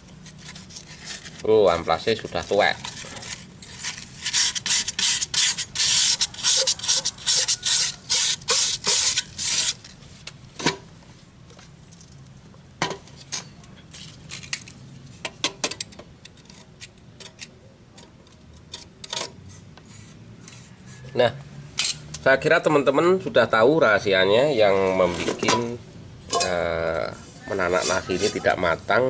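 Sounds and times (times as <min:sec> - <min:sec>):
sandpaper rubbing on metal: 0:00.4 - 0:09.9, 0:27.5 - 0:28.8.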